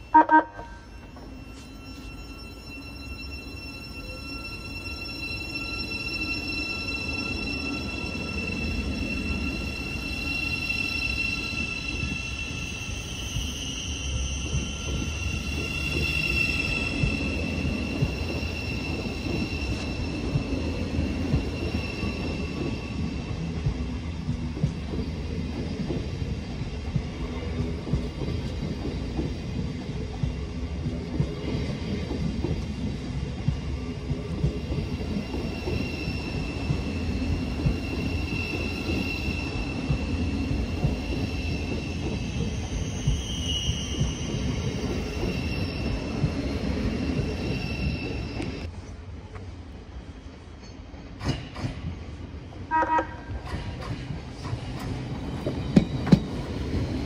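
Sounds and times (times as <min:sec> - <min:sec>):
high electric train whine: 0:00.0 - 0:57.0
train carriages rumbling: 0:00.0 - 0:57.0
train wheels clicking: 0:11.8 - 0:48.7, 0:50.6 - 0:57.0.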